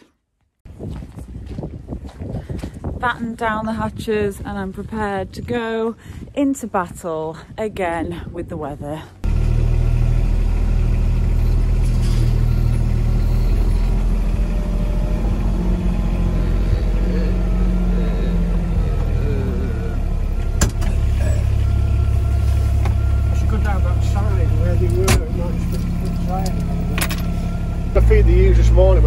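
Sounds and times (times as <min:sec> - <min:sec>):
tractor engine running: 0:09.2 - 0:29.0.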